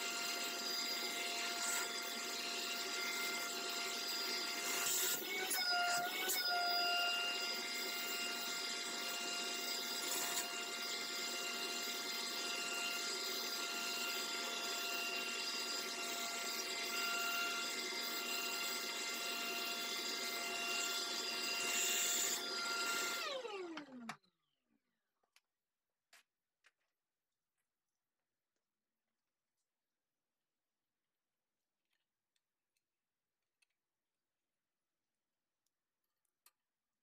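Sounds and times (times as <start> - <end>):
shop vacuum whining: 0.0 - 24.3
vacuum motor winding down: 9.4 - 24.1.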